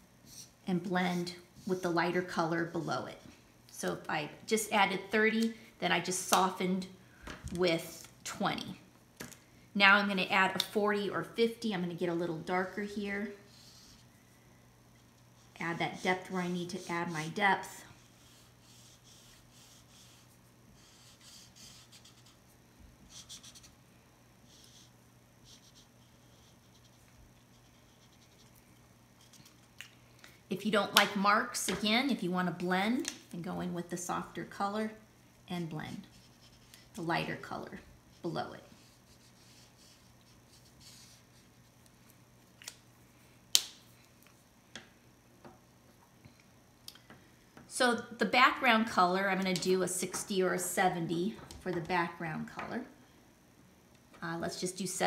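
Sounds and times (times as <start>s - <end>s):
marker rubbing on tracing paper: 15.6s - 23.7s, 24.5s - 28.5s, 36.0s - 37.1s, 38.1s - 41.7s.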